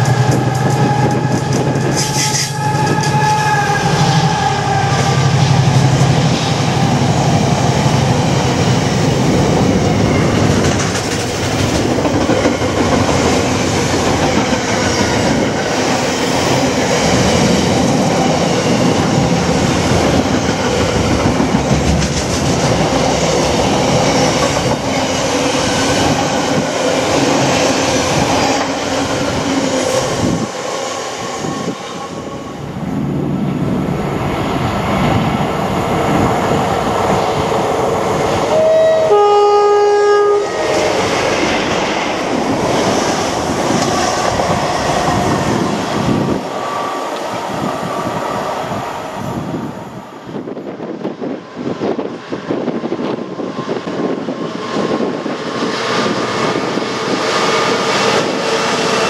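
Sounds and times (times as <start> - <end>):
diesel locomotive passing: 0.0 - 59.0
two-tone train horn: 0.6 - 5.5, 38.5 - 40.8.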